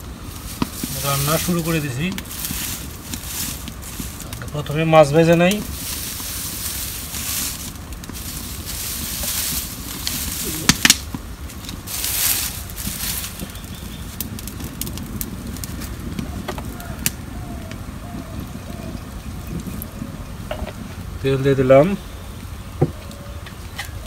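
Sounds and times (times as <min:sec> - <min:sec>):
dry straw and twigs rustling: 0:00.0 - 0:24.0
fire crackling: 0:00.0 - 0:24.0
sharp snaps: 0:10.0 - 0:11.8.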